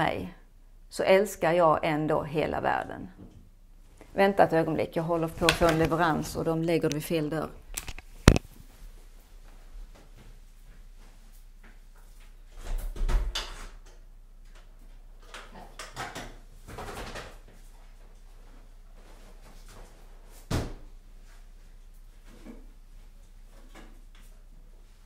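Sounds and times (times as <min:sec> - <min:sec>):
rustling and knocking: 0:07.7 - 0:08.8.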